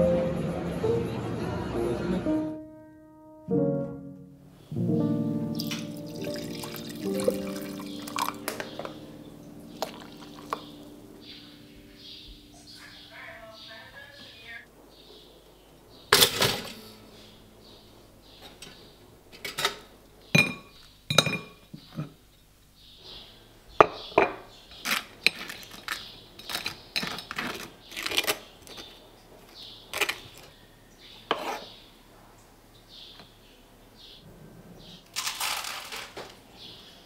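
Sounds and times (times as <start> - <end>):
crockery and cutlery clinking: 5.6 - 11.5, 16.1 - 17.0, 18.4 - 22.2, 23.8 - 28.9
knife scraping across toast: 31.3 - 31.8.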